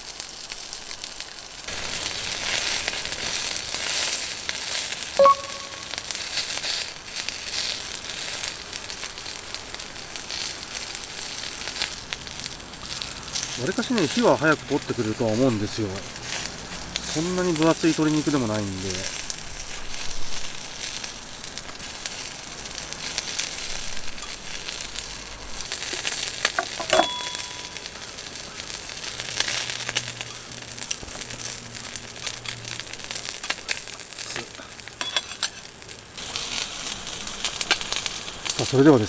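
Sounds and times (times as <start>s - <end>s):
chicken sizzling on a griddle: 0.0s - 39.0s
tongs clicking on metal plate: 25.9s - 27.7s.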